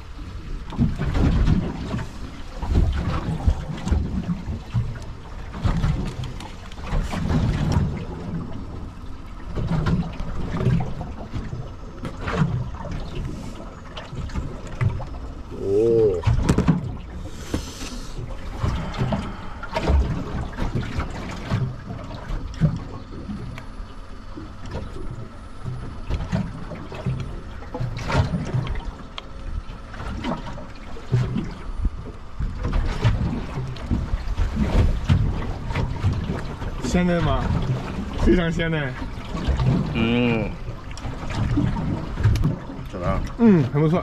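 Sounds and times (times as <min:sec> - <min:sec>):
water wash: 0:00.0 - 0:44.0
boat hull thumps and knocks: 0:00.7 - 0:08.6, 0:09.4 - 0:13.2, 0:16.2 - 0:17.7, 0:29.9 - 0:40.0.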